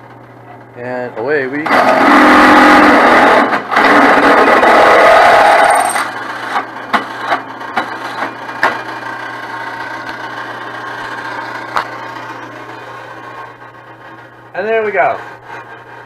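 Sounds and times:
drill bit cutting steel: 0:01.6 - 0:06.1
drill press motor hum: 0:01.6 - 0:14.5.

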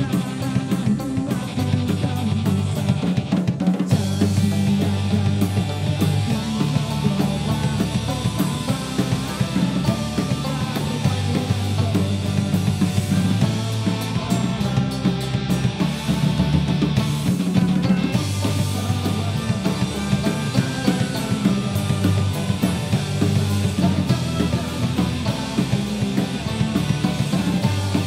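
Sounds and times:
drum kit beat: 0:00.0 - 0:28.0
person singing lead vocal: 0:00.0 - 0:28.0.

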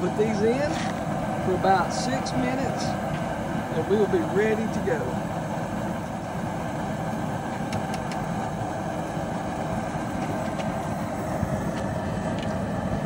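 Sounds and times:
boiling pot roar: 0:00.0 - 0:13.0.

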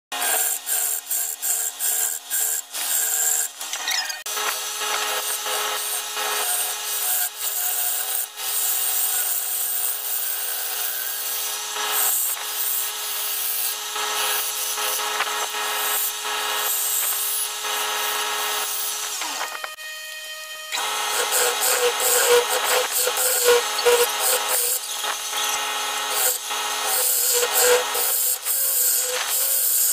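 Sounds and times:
gouge scraping wood: 0:20.8 - 0:28.1.

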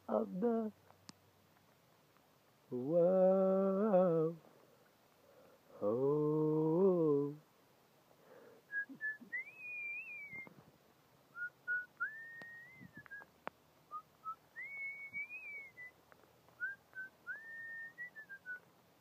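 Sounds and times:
man whistling a slow tune: 0:08.7 - 0:10.5, 0:11.4 - 0:13.3, 0:13.9 - 0:16.0, 0:16.6 - 0:18.6.

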